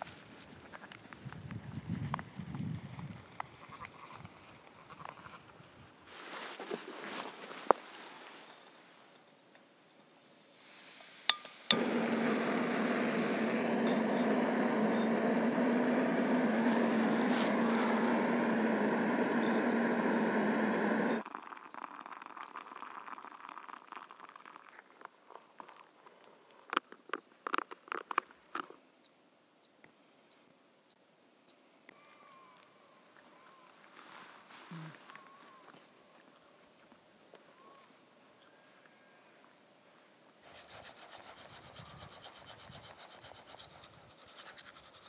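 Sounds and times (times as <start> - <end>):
gas stove burner hissing: 10.6 - 21.2
igniter clicks: 11.2 - 21.2.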